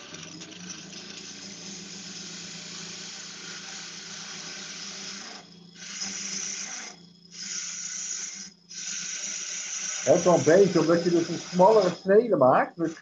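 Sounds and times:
lathe hum: 0:00.0 - 0:13.0
hiss of lathe shavings: 0:01.1 - 0:13.0.

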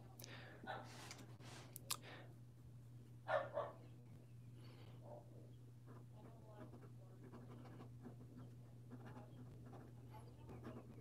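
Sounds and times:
pen nib scratching paper: 0:05.8 - 0:11.0.

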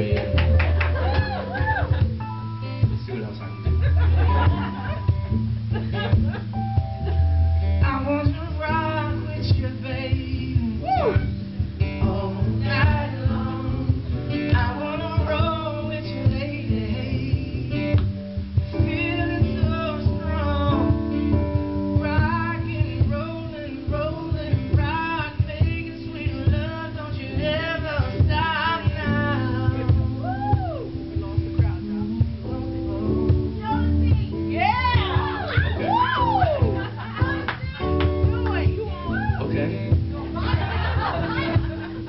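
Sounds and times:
man singing into microphone: 0:00.0 - 0:00.6, 0:07.8 - 0:18.1, 0:18.7 - 0:33.6, 0:39.0 - 0:40.4
guitar chords: 0:00.0 - 0:42.0.

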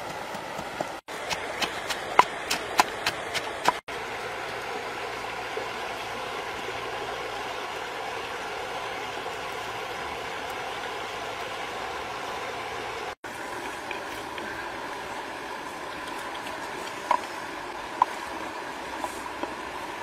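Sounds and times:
pestle pounding in clay mortar: 0:00.0 - 0:03.8.

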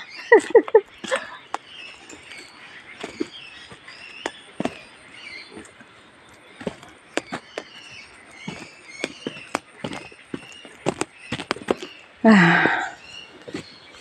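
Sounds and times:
faint high chirping: 0:00.0 - 0:14.0
footsteps on dirt path: 0:00.9 - 0:14.0.

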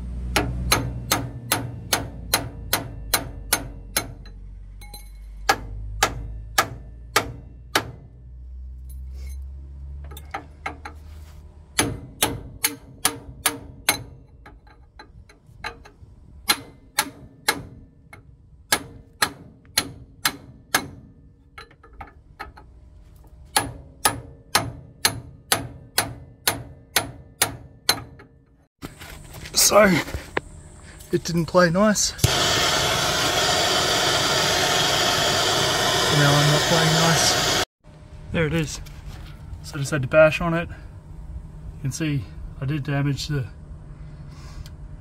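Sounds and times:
hammer striking steel bar: 0:00.3 - 0:08.1, 0:11.8 - 0:14.4, 0:16.4 - 0:21.2, 0:23.5 - 0:28.3.

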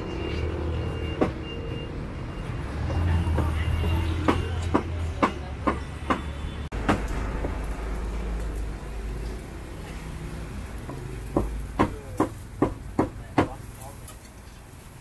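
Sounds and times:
sharp knocks: 0:04.2 - 0:07.6.

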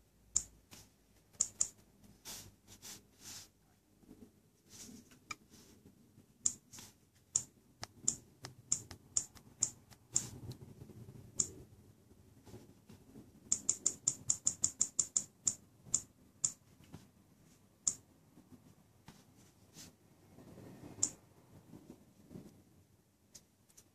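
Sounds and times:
smartphone touch-feedback clicks: 0:07.4 - 0:10.4, 0:13.5 - 0:16.6.

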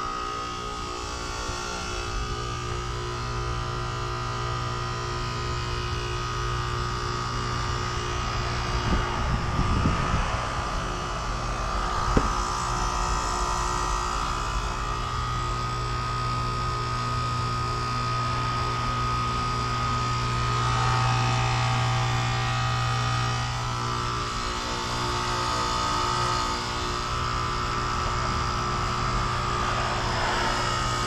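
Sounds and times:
compressor hum with whine: 0:00.0 - 0:31.0.

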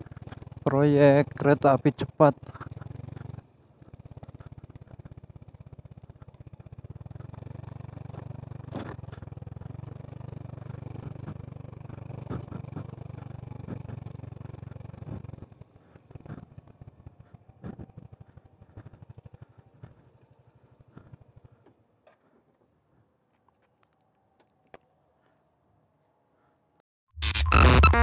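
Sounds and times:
motorcycle engine running: 0:00.0 - 0:21.6.

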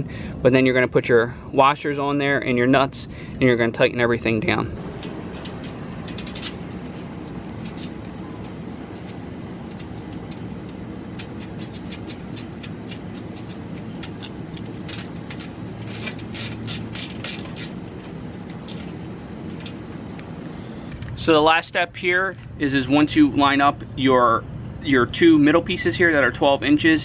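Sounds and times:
metal clicks and rattles: 0:04.8 - 0:21.0.

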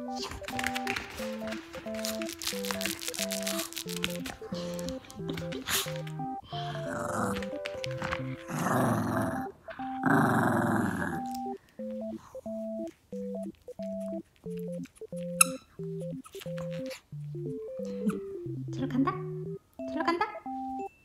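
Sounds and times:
dog growling: 0:06.5 - 0:11.3.

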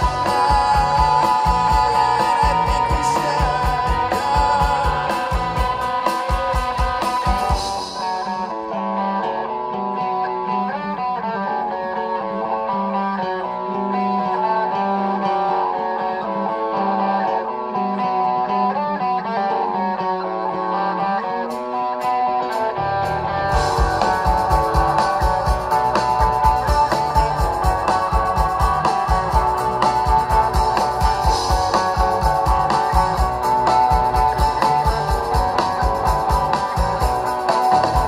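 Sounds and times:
drum kit: 0:00.0 - 0:08.6, 0:21.4 - 0:38.0
held bass line: 0:00.0 - 0:19.2, 0:20.3 - 0:38.0
picked electric guitars: 0:00.0 - 0:38.0.

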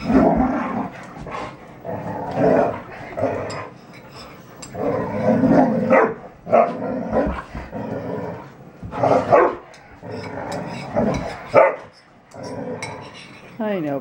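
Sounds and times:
dogs barking and growling: 0:00.0 - 0:13.6.

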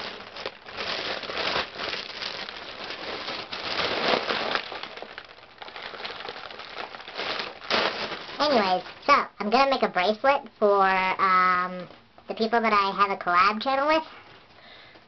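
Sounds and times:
foil balloon crinkling: 0:00.0 - 0:10.2
person breathing in: 0:14.6 - 0:15.0.

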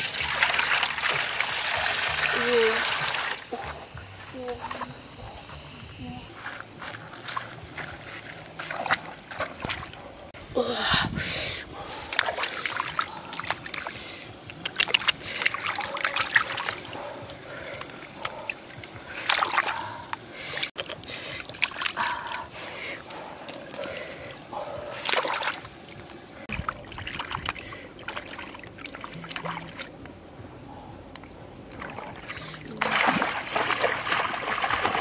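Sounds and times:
hands splashing in water: 0:31.8 - 0:35.0.

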